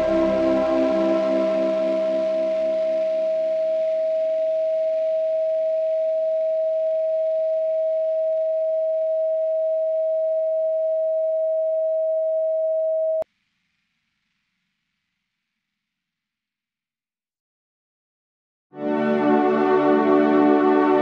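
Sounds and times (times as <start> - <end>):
steady sine tone: 0.0 - 13.2.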